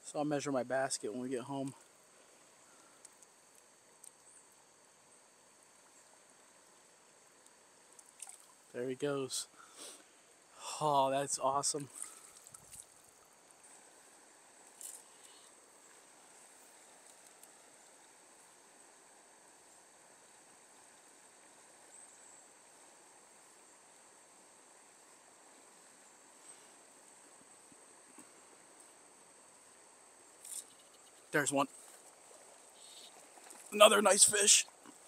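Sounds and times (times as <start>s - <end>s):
insect drone: 0.0s - 35.0s
faint clicks: 2.8s - 4.6s
stream water wash: 7.6s - 8.7s, 11.1s - 21.8s, 31.3s - 35.0s.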